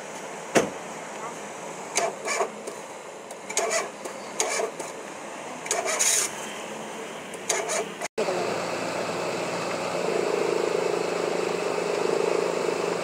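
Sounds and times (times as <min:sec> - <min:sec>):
hands and tools scraping engine parts: 0:02.0 - 0:02.8, 0:03.4 - 0:05.0, 0:05.7 - 0:06.4, 0:07.4 - 0:08.0.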